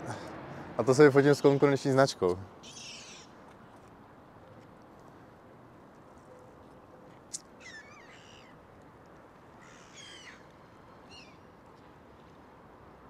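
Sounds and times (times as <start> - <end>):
steady outdoor hiss: 0.0 - 13.0
gulls calling: 0.9 - 3.4, 7.3 - 8.6, 9.6 - 11.5.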